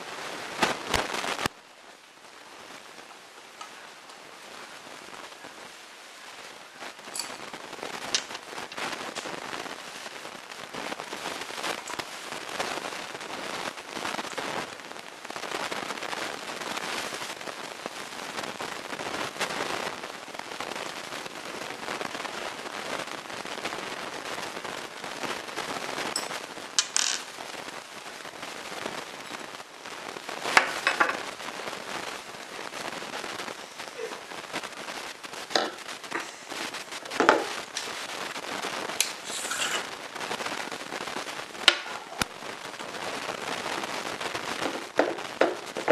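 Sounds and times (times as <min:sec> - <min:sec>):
hands rubbing metal parts: 0:39.0 - 0:39.9.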